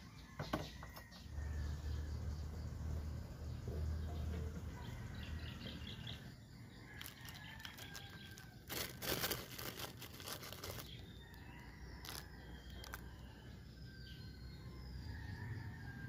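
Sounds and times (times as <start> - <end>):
paper wrapping crinkling: 6.9 - 13.2.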